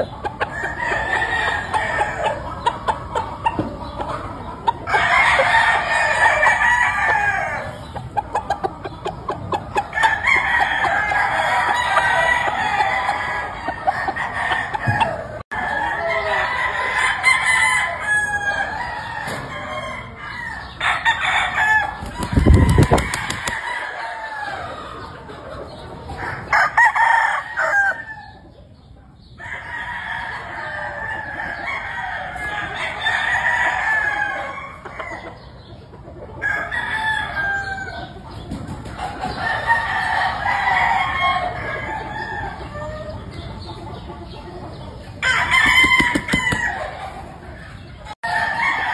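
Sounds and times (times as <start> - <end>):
roosters crowing: 0.0 - 8.7, 9.3 - 28.5, 29.4 - 35.6, 36.3 - 43.6, 45.0 - 48.9
chickens clucking: 0.0 - 48.9.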